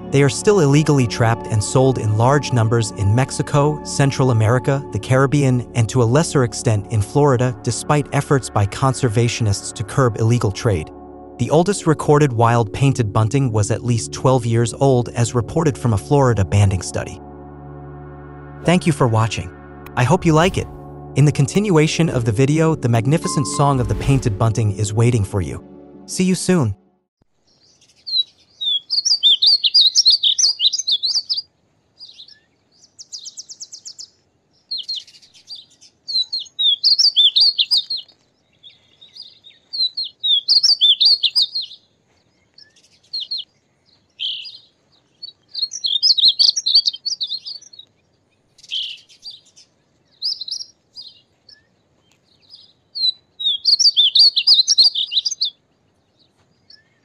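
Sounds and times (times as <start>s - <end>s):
bird singing warbled song: 27.4s - 57.0s.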